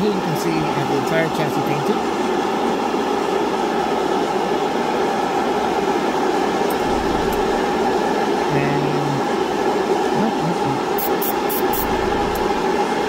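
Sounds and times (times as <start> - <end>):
airbrush motor drone: 6.7 - 7.8, 11.4 - 12.8.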